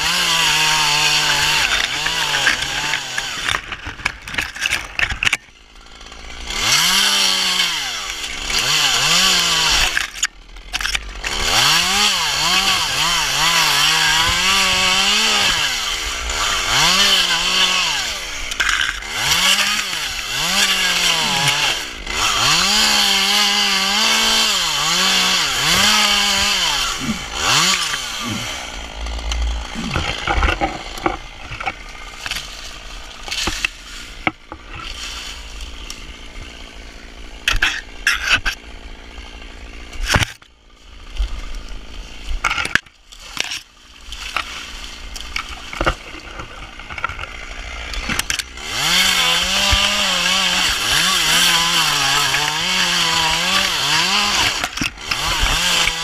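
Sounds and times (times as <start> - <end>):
chainsaw cutting: 0.0 - 56.0
dry fronds crackling and rustling: 25.8 - 37.2, 40.5 - 56.0.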